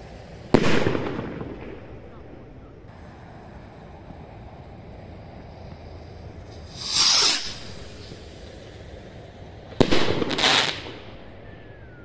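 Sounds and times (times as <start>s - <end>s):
firework bang: 0.0s - 3.1s, 6.4s - 8.3s, 9.7s - 12.0s
firework crackling: 0.0s - 12.0s
firework rocket whoosh: 0.0s - 12.0s.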